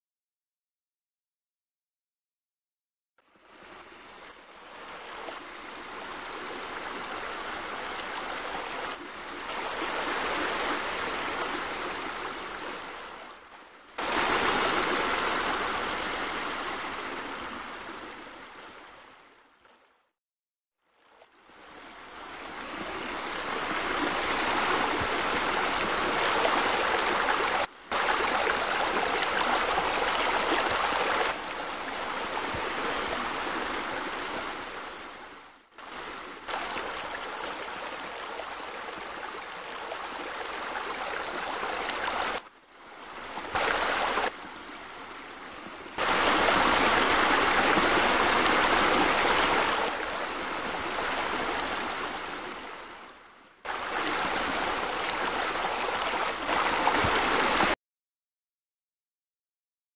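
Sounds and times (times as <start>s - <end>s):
water running and splashing: 23.6s - 34.0s, 35.8s - 42.4s, 43.4s - 44.3s, 46.0s - 52.0s.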